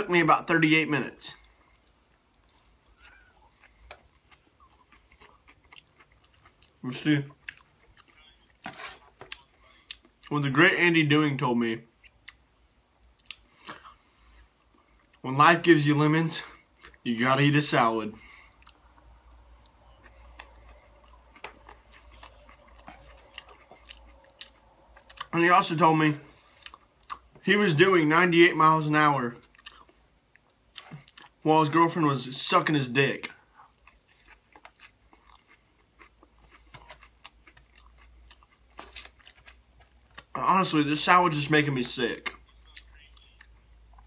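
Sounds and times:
low steady hum: 0.0 - 44.0
chewing: 1.4 - 10.3, 12.0 - 15.2, 18.2 - 25.4, 26.2 - 27.4, 29.4 - 31.4, 33.5 - 40.4.

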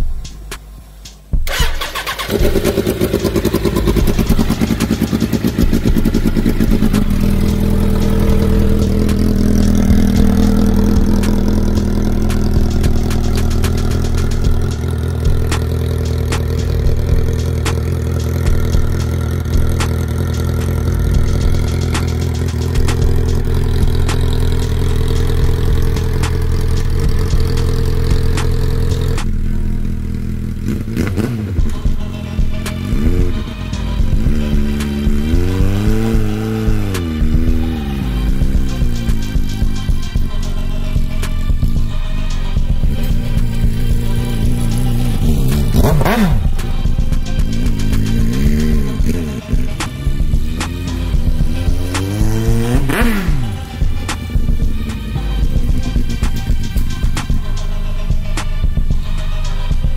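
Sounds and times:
motorcycle engine running: 0.0 - 59.9
electric starter cranking: 1.4 - 29.3.

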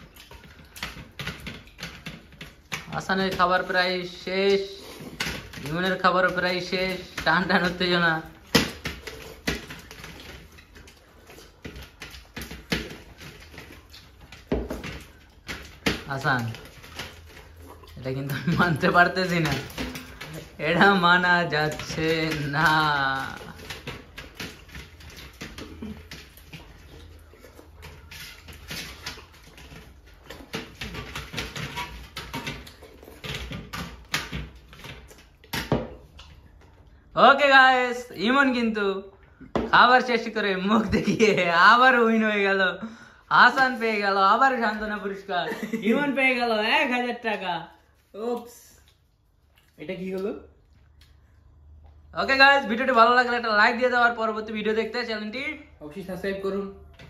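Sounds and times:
mouths chewing: 4.6 - 34.1
chewing and lip-smacking: 16.6 - 18.3, 23.4 - 33.3, 48.8 - 49.8, 50.5 - 52.1.

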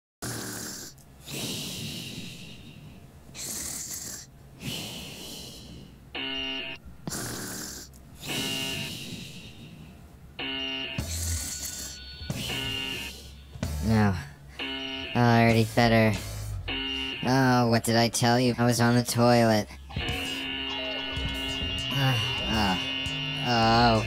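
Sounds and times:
cartoon snoring: 0.2 - 6.0, 7.0 - 9.8, 11.0 - 14.2
short pitched tone: 10.4 - 13.3, 19.9 - 24.0.

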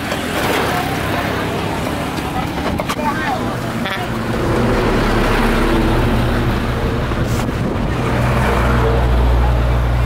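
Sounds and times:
engine running low: 0.0 - 10.0
wind noise on microphone: 4.3 - 10.0.

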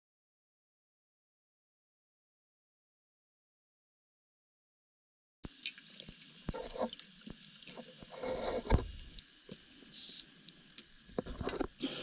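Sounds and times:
steady high hiss underwater: 5.5 - 12.0
short hissing burst: 9.9 - 10.3.

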